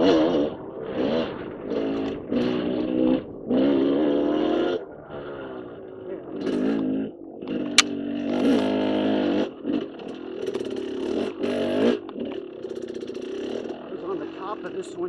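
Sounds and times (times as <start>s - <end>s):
dirt bike engine revving: 0.0s - 15.0s
sharp click: 7.8s - 8.0s.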